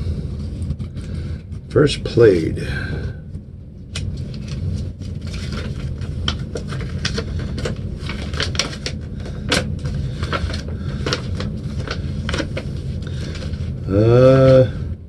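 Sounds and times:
low hum: 0.0s - 15.0s
paper crinkling and rustling: 3.9s - 14.6s.

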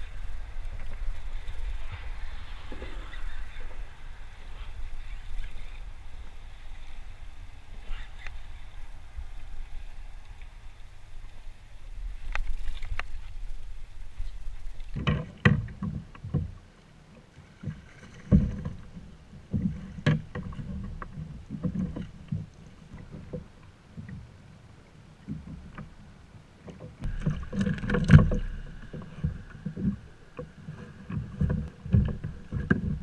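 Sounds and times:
waves slapping plastic hull: 26.7s - 33.0s.

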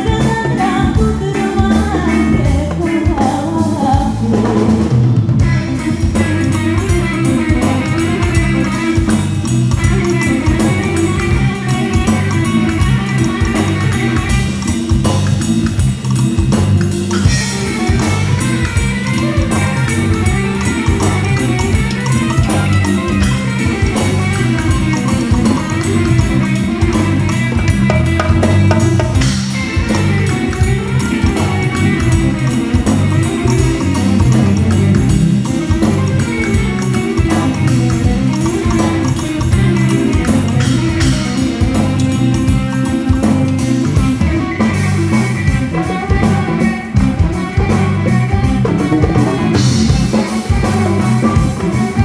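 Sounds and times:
woman singing: 0.0s - 4.9s
bass guitar: 0.0s - 52.0s
drum kit: 0.0s - 52.0s
electric guitar: 0.0s - 52.0s.

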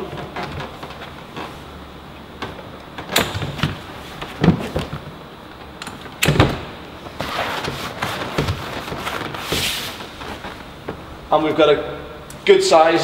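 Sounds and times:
bench seat clunking: 0.0s - 11.2s
rubbing and sliding: 7.1s - 10.9s.

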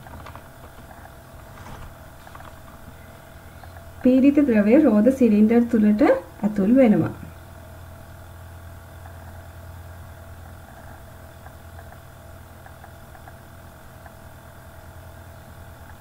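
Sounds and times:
steady low hum: 0.0s - 16.0s
tiny ticks: 10.4s - 14.2s.

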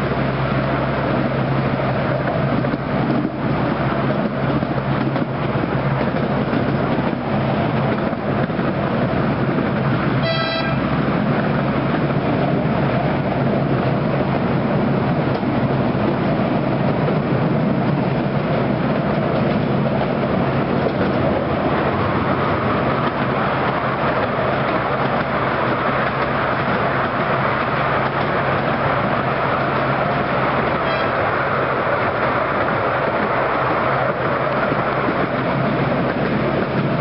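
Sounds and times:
miniature train running on track: 0.0s - 37.0s
high train horn toot: 10.2s - 11.0s, 30.8s - 31.3s.

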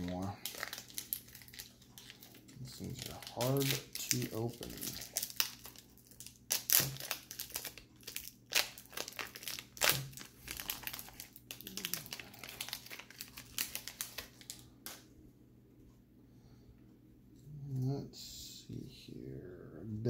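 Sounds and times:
foil wrapper crinkling and tearing: 0.0s - 15.0s.

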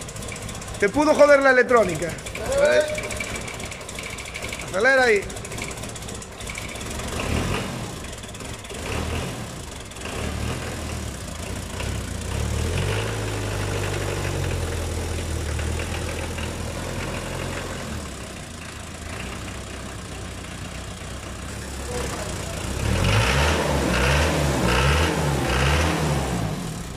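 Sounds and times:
diesel engine revving: 0.0s - 26.9s.

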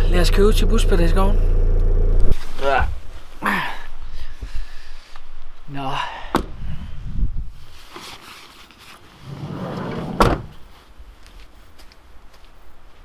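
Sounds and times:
handling and rustling: 7.6s - 11.5s
van door slamming: 9.9s - 10.6s.

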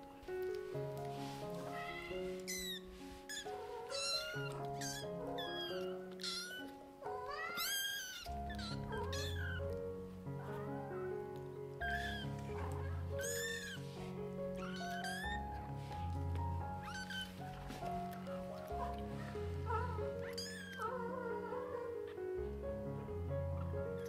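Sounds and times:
background music sustained notes: 0.0s - 24.0s
kittens mewing: 1.5s - 9.8s, 11.8s - 15.5s, 16.8s - 22.2s.

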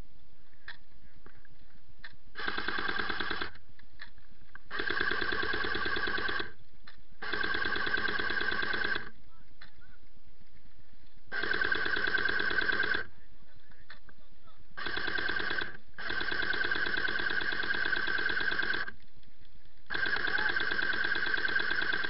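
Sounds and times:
airsoft rifle full-auto bursts: 2.4s - 3.6s, 4.7s - 6.6s, 7.2s - 9.2s, 11.3s - 13.1s, 14.8s - 19.0s, 19.9s - 22.0s.

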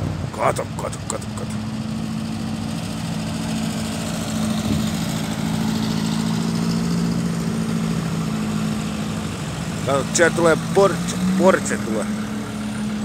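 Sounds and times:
car engines humming: 0.0s - 13.0s.

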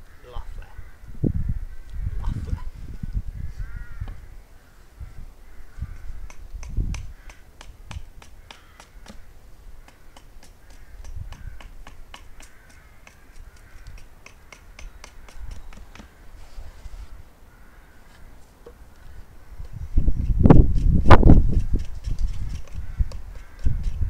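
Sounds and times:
crows cawing: 0.0s - 2.2s, 2.9s - 6.4s, 7.0s - 7.6s, 8.2s - 16.4s, 17.4s - 19.7s, 22.7s - 24.0s
hatchet knocking on wood: 6.2s - 9.2s, 9.8s - 16.1s.

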